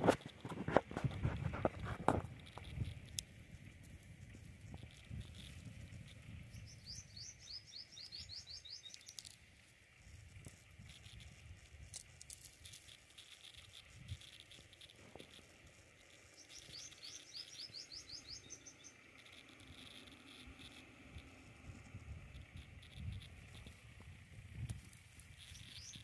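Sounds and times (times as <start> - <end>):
high rising chirps: 6.5 - 9.2, 16.0 - 21.3.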